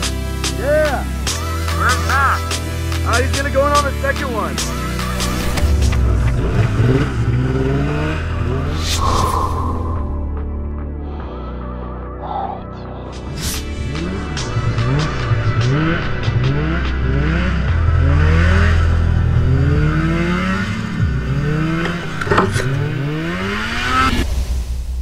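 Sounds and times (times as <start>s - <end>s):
snowmobile engine revving: 0.0s - 9.1s, 13.6s - 24.2s.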